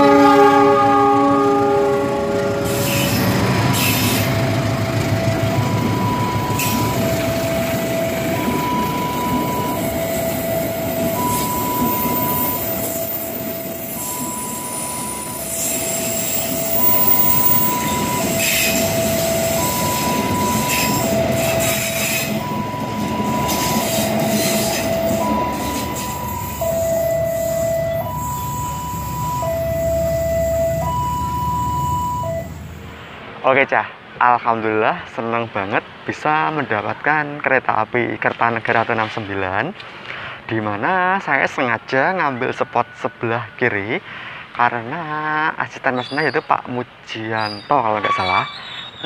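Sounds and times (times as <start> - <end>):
train wheels rumbling on rails: 0.0 - 33.4
level crossing alarm two-tone: 4.0 - 32.6.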